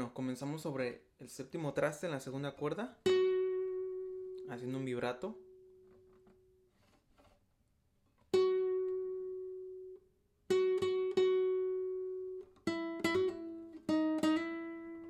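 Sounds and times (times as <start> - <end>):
classical guitar solo: 3.0 - 6.6, 8.3 - 15.0.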